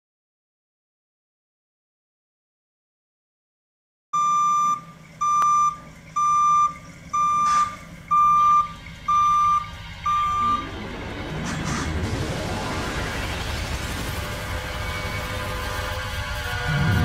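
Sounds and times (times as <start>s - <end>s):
truck back-up alarm beeping: 4.2s - 11.1s
low steady rumble: 4.2s - 17.0s.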